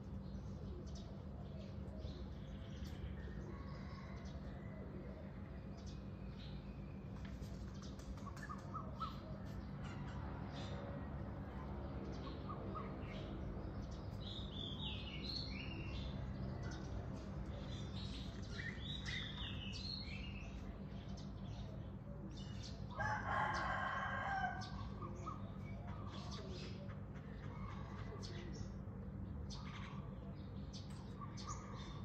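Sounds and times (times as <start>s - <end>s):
steady low hum: 0.0s - 23.7s
rooster crowing: 3.2s - 5.0s, 22.9s - 24.9s
small birds chirping: 5.6s - 32.0s.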